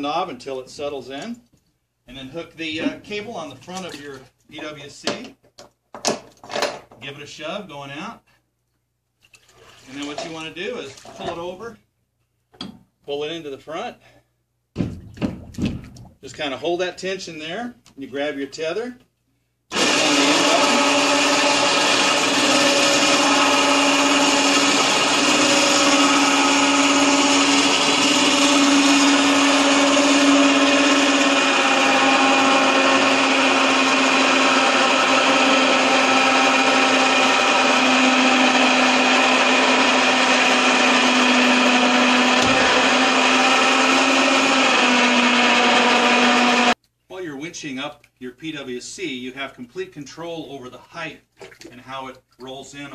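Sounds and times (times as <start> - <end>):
electric winch motor running: 19.7 - 46.7.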